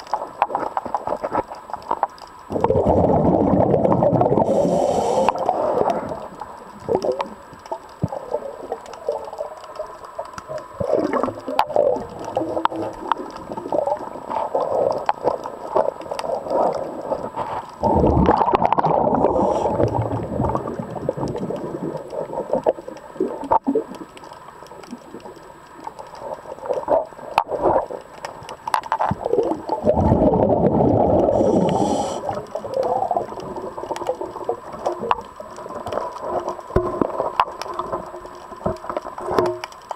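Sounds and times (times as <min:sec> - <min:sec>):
bubbling gurgle: 0:00.0 - 0:39.6
muffled underwater sound: 0:00.0 - 0:39.9
small clicks and knocks: 0:05.3 - 0:16.4, 0:21.2 - 0:29.6, 0:32.4 - 0:39.9.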